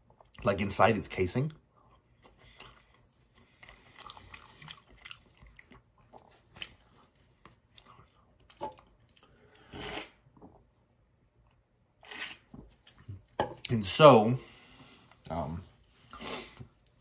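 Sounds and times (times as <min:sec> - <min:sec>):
person chewing: 0:01.6 - 0:10.7, 0:11.4 - 0:13.3.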